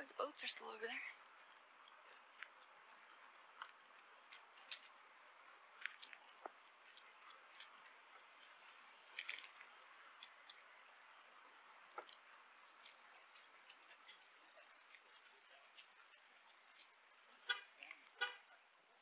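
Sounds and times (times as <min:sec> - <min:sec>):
low steady hiss: 0:00.0 - 0:19.0
faint clicks and ticks: 0:01.4 - 0:05.1, 0:11.9 - 0:18.8.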